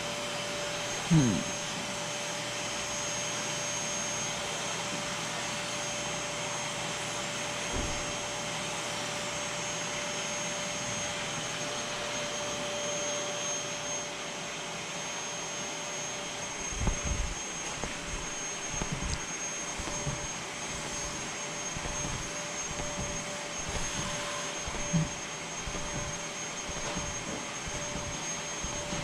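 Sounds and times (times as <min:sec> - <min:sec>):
vacuum cleaner running on carpet: 0:00.0 - 0:29.0.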